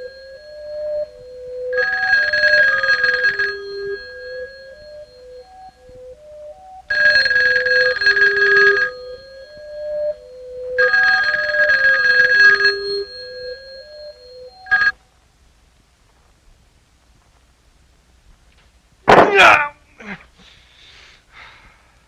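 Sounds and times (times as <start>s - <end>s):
slow stepping melody: 0.0s - 2.6s, 3.7s - 8.0s, 8.9s - 10.8s
telephone bell ringing: 0.0s - 5.8s, 6.9s - 15.0s.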